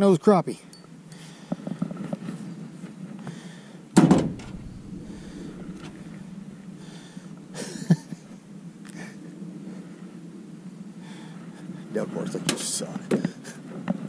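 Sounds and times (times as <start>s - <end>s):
steady low hum: 4.0s - 11.0s.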